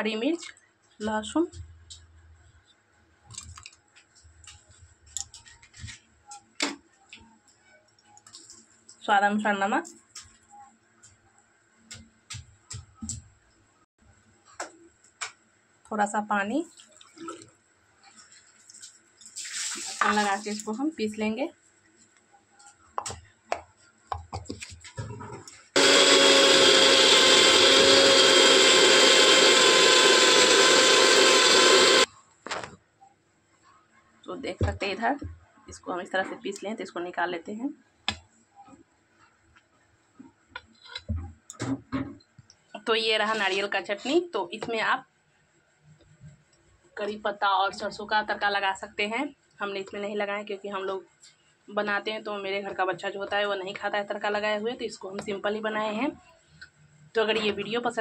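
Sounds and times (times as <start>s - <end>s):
mixer grinder motor whining: 25.8s - 32.1s.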